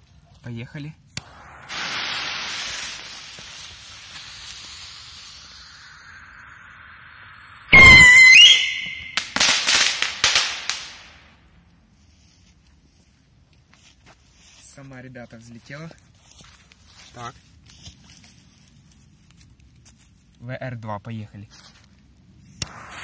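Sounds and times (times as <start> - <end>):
crackling pops: 1.1 - 11.4, 22.5 - 23.0
fuse hissing: 1.2 - 9.4, 22.6 - 23.0
high rising whistle: 1.2 - 9.9
rocket launch blast: 1.2 - 11.2, 22.6 - 23.0.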